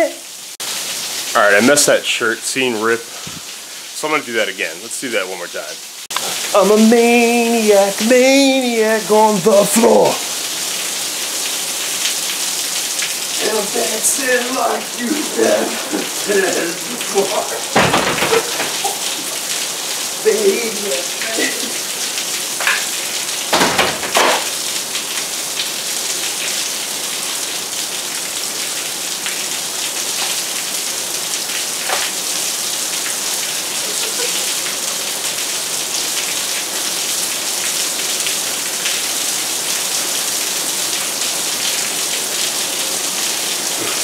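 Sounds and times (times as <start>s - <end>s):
heavy rain pouring: 0.0s - 44.0s
water spilling over gutters: 0.3s - 44.0s
loud impacts: 17.7s - 18.9s.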